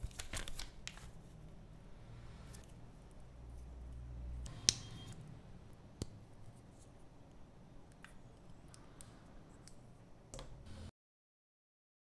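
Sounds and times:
plastic being handled: 0.0s - 1.3s.

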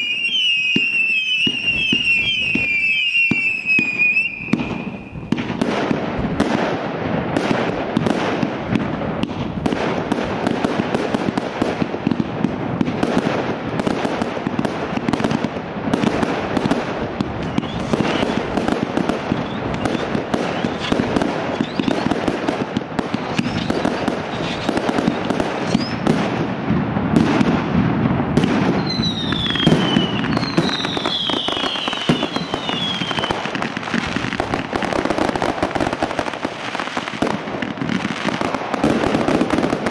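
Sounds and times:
falling firework whistles: 0.0s - 5.7s, 16.6s - 26.3s, 28.4s - 37.3s
fireworks launching and bursting: 0.0s - 39.9s.

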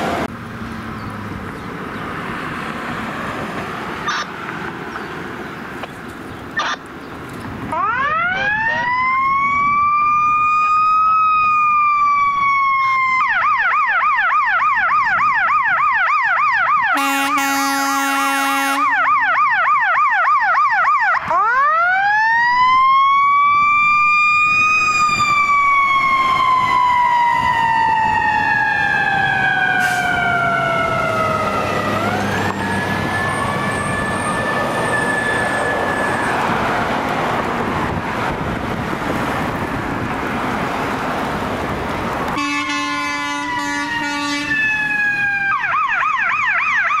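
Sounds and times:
road and engine noise: 0.0s - 47.0s
ambulance siren yelp and wail: 7.7s - 38.8s, 42.4s - 47.0s
ambulance horn blast: 16.9s - 19.0s, 42.4s - 45.5s.

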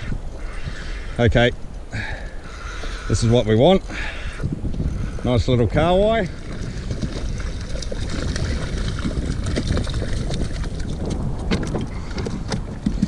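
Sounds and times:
wind buffeting microphone: 0.0s - 13.0s
fish splashing in water: 6.3s - 11.2s.

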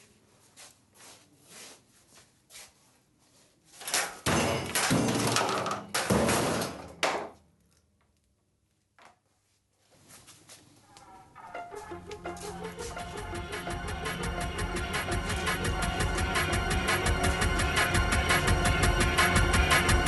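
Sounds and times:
loud banging and clattering: 3.9s - 7.4s.

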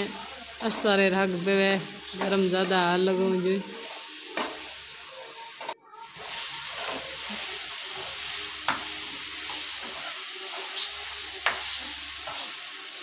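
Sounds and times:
vegetables sizzling in hot oil: 0.0s - 13.0s
metal spoon stirring and scraping: 5.6s - 12.6s.

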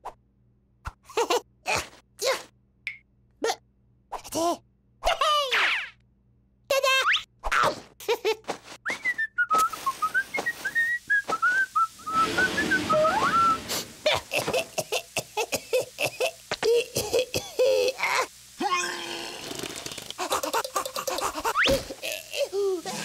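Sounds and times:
hiss with rising whistle: 9.7s - 14.1s
squeaky cartoon vocal sounds: 18.6s - 19.4s.

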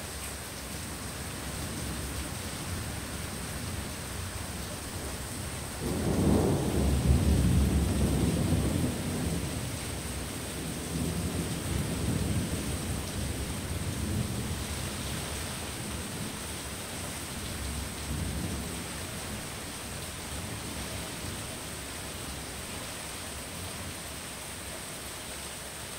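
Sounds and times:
heavy rain: 0.0s - 25.9s
rolling thunder rumble: 5.3s - 14.8s.

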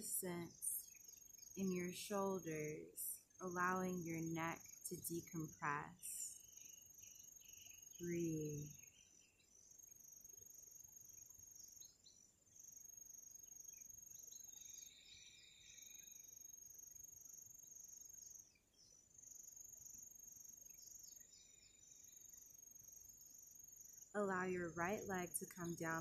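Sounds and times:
insects trilling: 6.4s - 24.1s.

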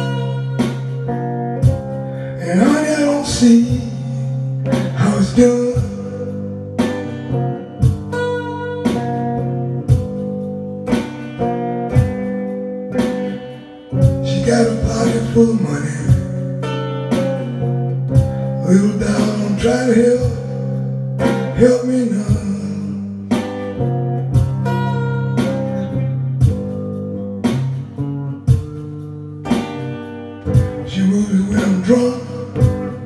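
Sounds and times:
electric guitar playing slow blues: 0.0s - 33.0s
man singing: 2.3s - 6.4s, 14.1s - 16.4s, 18.6s - 23.1s, 30.6s - 33.0s.

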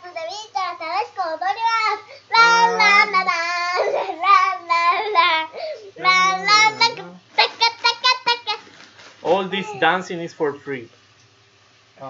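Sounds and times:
girl singing in a high voice: 0.0s - 5.2s, 6.0s - 8.0s.

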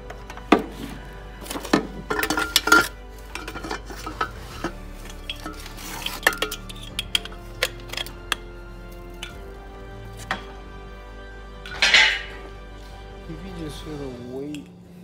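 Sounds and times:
metal clanks and clinks: 1.5s - 8.4s, 11.7s - 12.4s.

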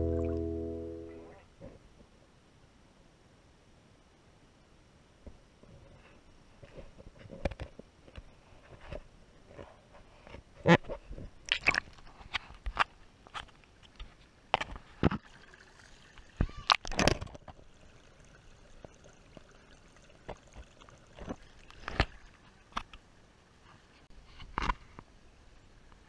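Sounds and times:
faint running water: 13.6s - 24.1s.

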